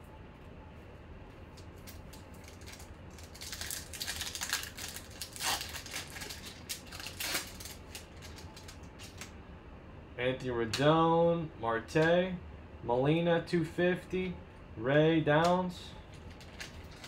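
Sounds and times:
low steady hum: 0:00.0 - 0:17.0
foil wrapper crinkling: 0:01.8 - 0:09.3, 0:16.2 - 0:17.0.

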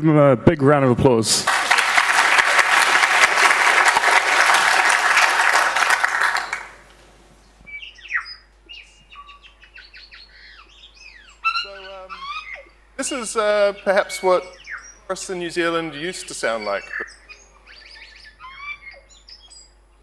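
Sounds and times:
audience applauding: 0:01.4 - 0:07.1, 0:15.1 - 0:16.8
forest birdsong: 0:06.4 - 0:20.0.

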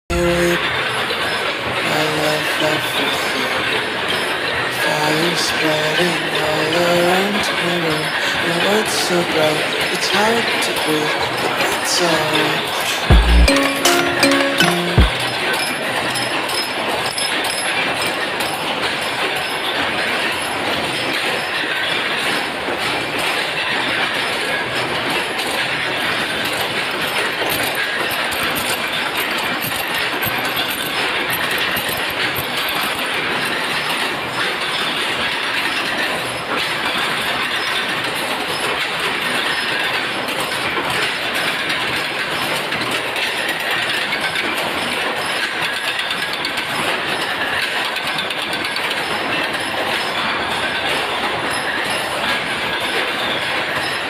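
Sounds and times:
chain-making machines clattering: 0:16.2 - 0:54.0.

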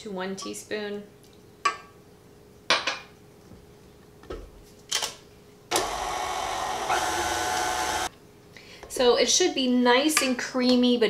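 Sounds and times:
stand mixer running: 0:05.7 - 0:08.1.

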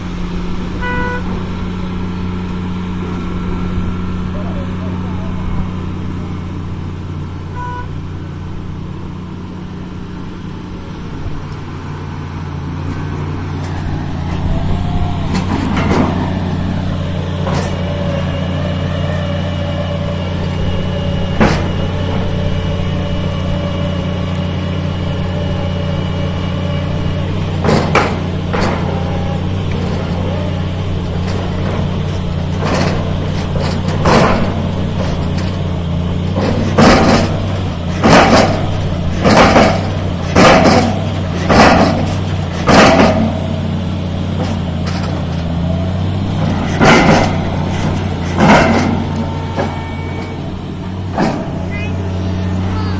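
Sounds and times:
diesel engine running: 0:00.0 - 0:52.9
sharp metallic clanks: 0:46.4 - 0:51.8.

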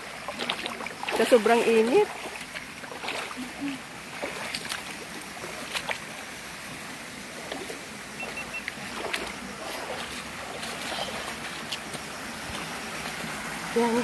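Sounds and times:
stream rushing over rocks: 0:00.0 - 0:14.0
footsteps on stones and gravel: 0:08.7 - 0:12.8.

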